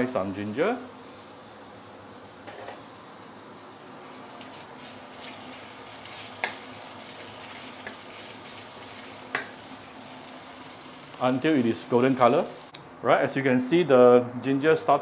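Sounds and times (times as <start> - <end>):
ginger sizzling in oil: 0.0 - 12.8
spatula tapping wok: 6.4 - 6.7, 9.3 - 9.6.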